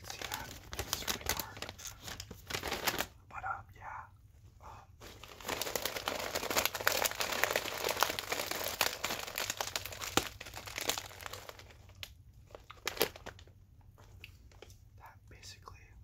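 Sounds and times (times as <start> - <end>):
chip bag crinkling: 0.0 - 3.2, 5.0 - 14.8.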